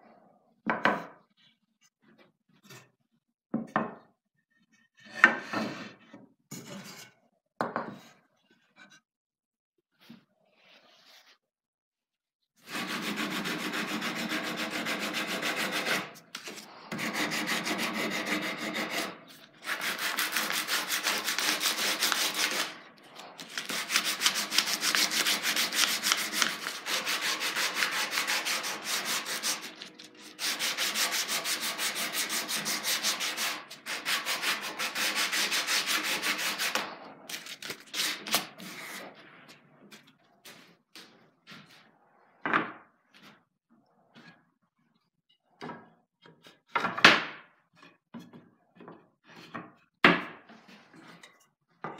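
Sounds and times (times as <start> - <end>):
sandpaper sanding wood: 12.6 - 36.9, 37.9 - 39.0.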